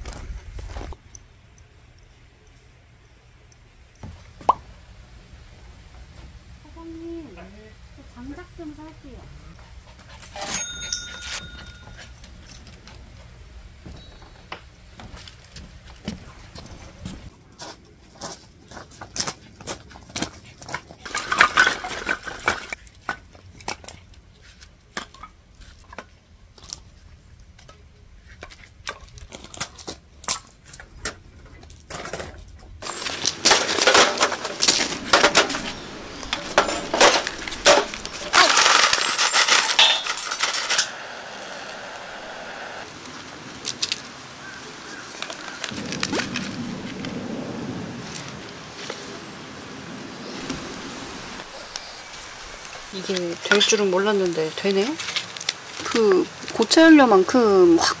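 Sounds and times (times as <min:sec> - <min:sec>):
firewood clicks and knocks: 0:27.6 - 0:40.8
fire crackling: 0:32.8 - 0:58.0.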